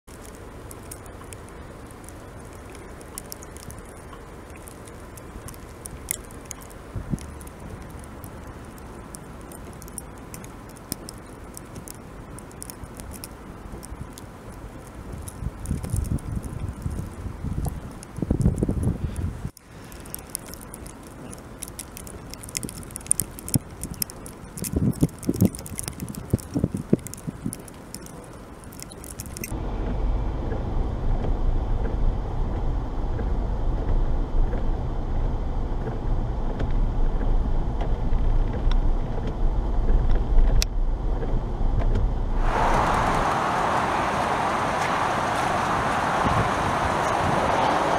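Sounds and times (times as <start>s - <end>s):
small sharp ticks: 0.0s - 29.6s, 42.5s - 47.9s
steady low hiss: 0.1s - 47.9s
steady rushing noise: 29.3s - 47.9s.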